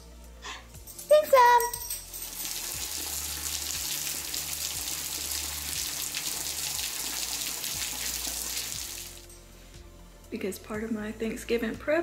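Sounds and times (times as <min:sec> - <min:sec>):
water hissing and spattering: 0:02.2 - 0:09.3.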